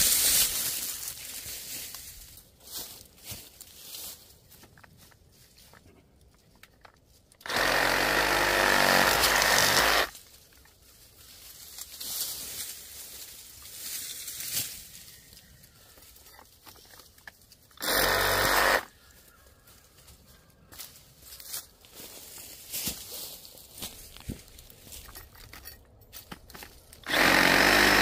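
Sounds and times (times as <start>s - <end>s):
reciprocating saw cutting brush: 27.1s - 28.0s.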